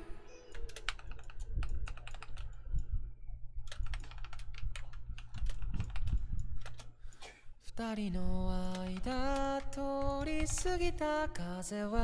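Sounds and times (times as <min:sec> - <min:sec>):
steady low hum: 0:00.0 - 0:12.0
keyboard keys clicking: 0:00.5 - 0:02.9, 0:03.6 - 0:06.9, 0:08.5 - 0:11.4.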